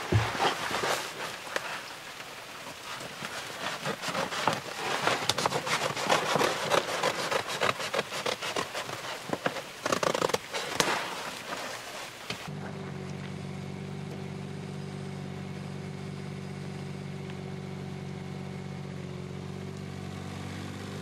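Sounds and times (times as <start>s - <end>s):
plastic sheet crinkling: 2.6s - 12.5s.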